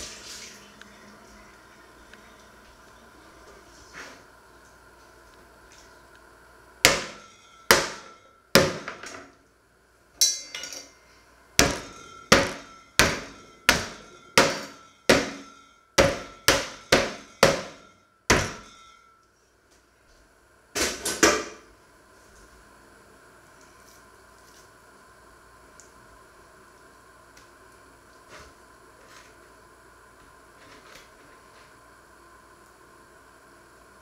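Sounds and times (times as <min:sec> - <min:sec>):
saucepan pounding meat on board: 0:06.9 - 0:09.0, 0:11.6 - 0:18.7.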